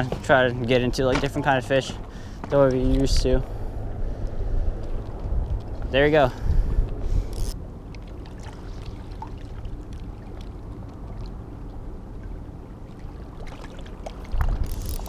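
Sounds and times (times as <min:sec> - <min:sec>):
spillway water rushing past rocks: 0:07.8 - 0:15.0.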